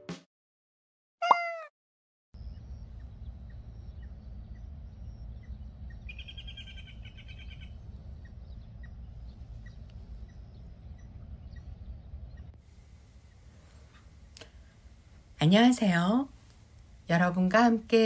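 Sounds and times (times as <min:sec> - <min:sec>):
faint short chirps: 0:01.2 - 0:01.6
bird calling rapid notes: 0:01.2 - 0:01.7, 0:05.9 - 0:07.7
low rumble: 0:02.4 - 0:13.6.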